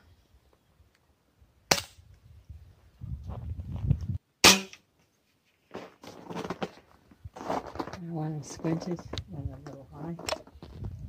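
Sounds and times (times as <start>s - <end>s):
pellet gun shots: 1.7s - 2.0s, 4.4s - 4.8s.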